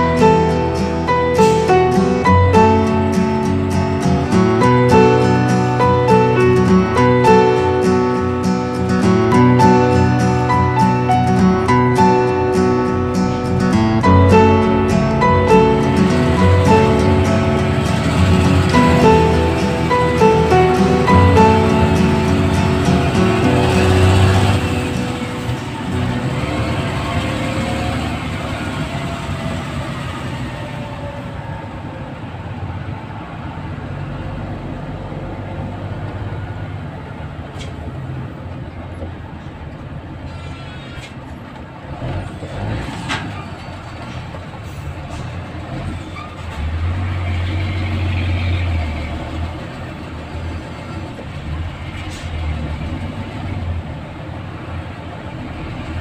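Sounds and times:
background music: 0.0s - 30.3s
road noise: 0.0s - 56.0s
vehicle engine rumble: 0.0s - 56.0s.

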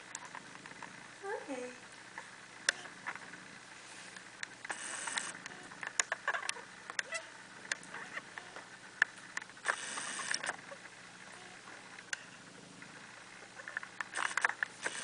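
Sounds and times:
kittens nursing clicks and smacks: 4.2s - 8.3s.

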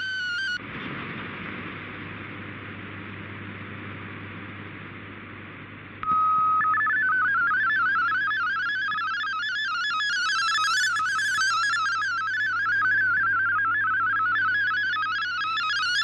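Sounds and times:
radio hiss: 0.0s - 16.0s
steady single tone: 6.0s - 15.9s
rapidly stepping data tones: 6.0s - 16.0s.

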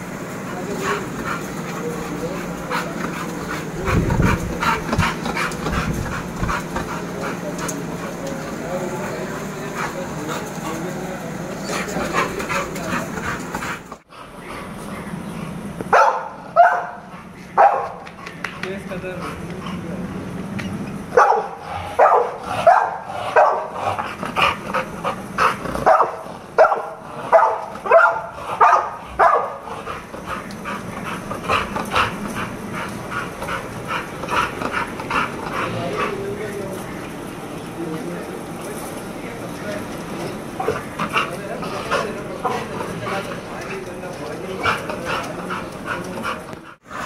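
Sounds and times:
dog barking: 15.9s - 18.0s, 21.1s - 23.8s, 25.8s - 29.6s.

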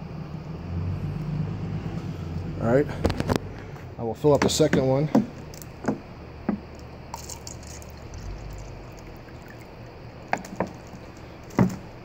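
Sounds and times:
water pouring into plastic cup: 7.1s - 11.6s.

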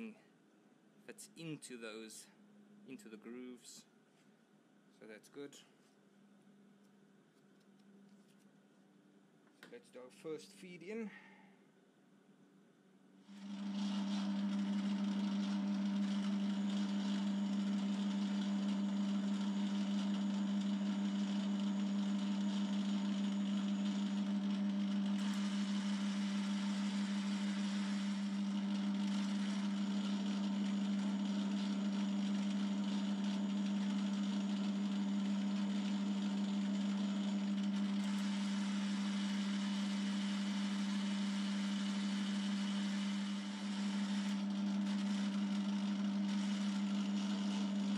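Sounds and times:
metal lathe running: 13.3s - 47.9s.

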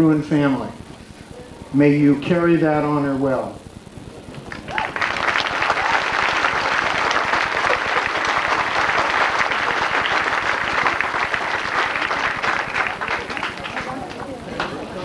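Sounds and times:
audience applauding: 4.3s - 15.0s.

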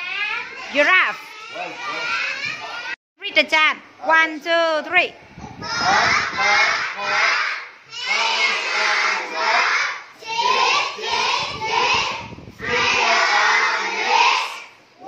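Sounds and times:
children chanting in unison: 5.6s - 14.8s.

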